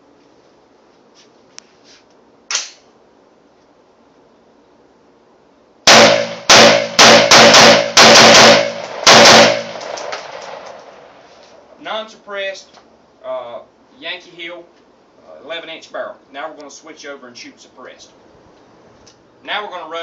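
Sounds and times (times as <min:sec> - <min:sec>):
rifle gunshots: 0:05.9 - 0:11.2.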